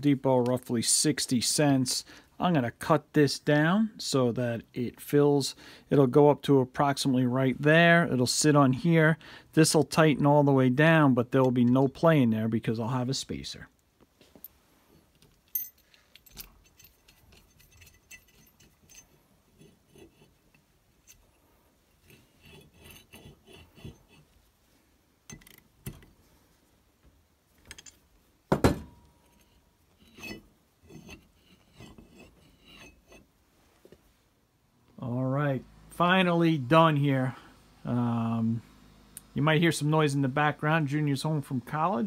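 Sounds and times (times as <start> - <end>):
steel parts clinking: 14.9 - 24.3, 25.3 - 26.1, 27.6 - 28.2, 28.8 - 33.3
metal knock: 28.5 - 29.0.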